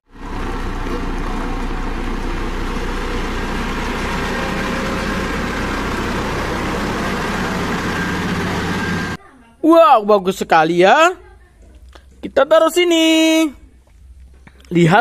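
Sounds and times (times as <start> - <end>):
asphalt roller engine rumble: 0.0 - 9.2.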